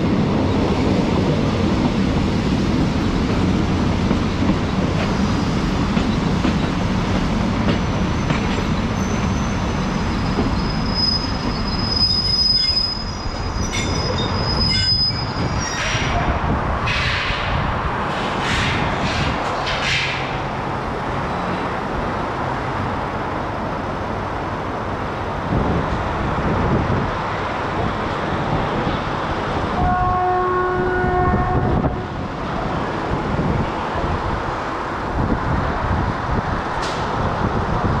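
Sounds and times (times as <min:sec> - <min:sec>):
train wheels rumbling: 0:00.0 - 0:38.0
train horn blast: 0:29.8 - 0:32.1.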